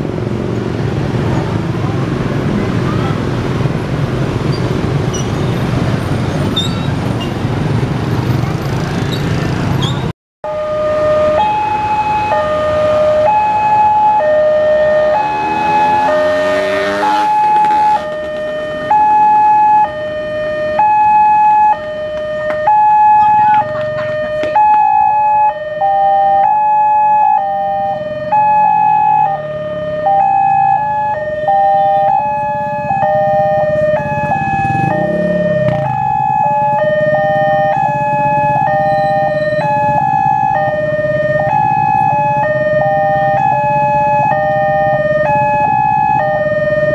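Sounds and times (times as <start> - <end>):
level crossing two-tone alarm: 10.4 - 46.9
second crossing alarm: 10.4 - 46.9.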